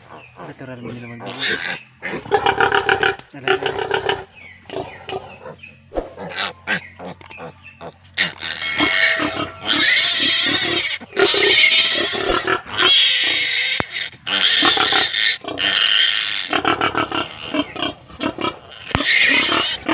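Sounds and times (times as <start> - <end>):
piglet squealing: 1.3 - 2.3, 6.2 - 19.9.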